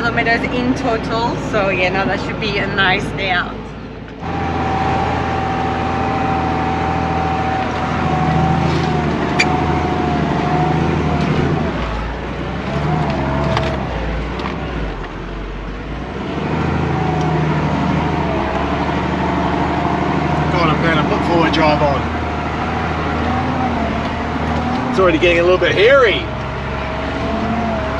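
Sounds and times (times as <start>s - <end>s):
truck diesel engine running: 0.0s - 27.9s.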